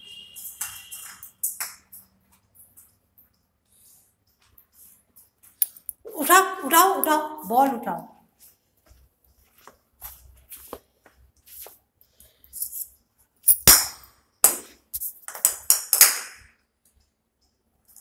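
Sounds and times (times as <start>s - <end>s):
puppy claws tapping on marble floor: 0.5s - 2.9s
scuffs: 3.7s - 12.8s.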